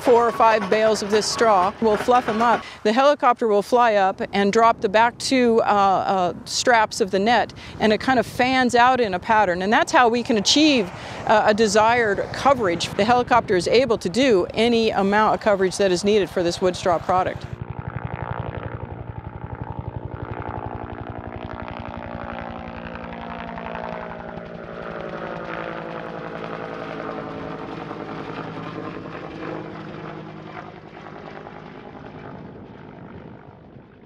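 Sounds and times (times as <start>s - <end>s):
helicopter rotor chop: 0.0s - 34.0s.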